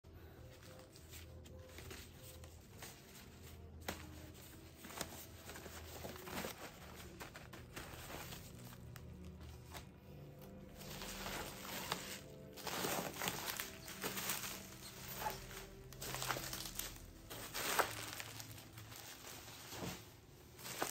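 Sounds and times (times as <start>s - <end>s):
paper bags rustling: 0.2s - 20.9s.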